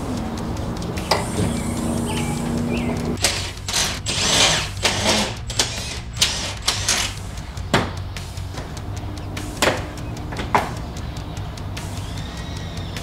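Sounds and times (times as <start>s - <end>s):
rustles clicks and clatter: 0.0s - 13.0s.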